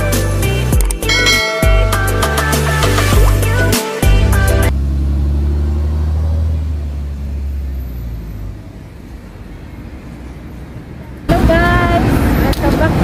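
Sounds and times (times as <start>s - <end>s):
passing vehicle engine rumble: 4.2s - 13.0s
faint street noise: 4.8s - 13.0s.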